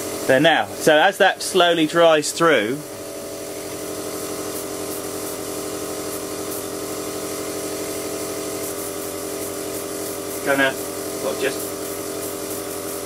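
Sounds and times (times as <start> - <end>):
air compressor humming: 0.0 - 13.0
hiss of air: 8.4 - 13.0.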